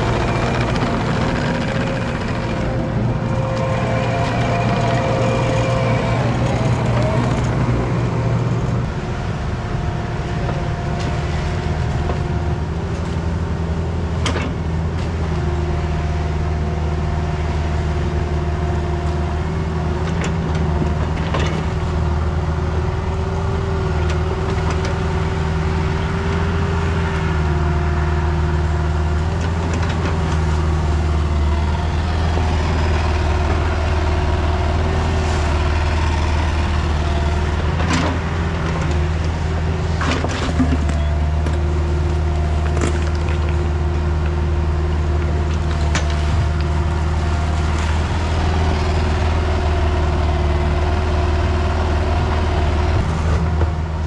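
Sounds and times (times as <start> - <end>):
hydraulic whine: 0.0 - 8.8
diesel engine running: 0.0 - 54.0.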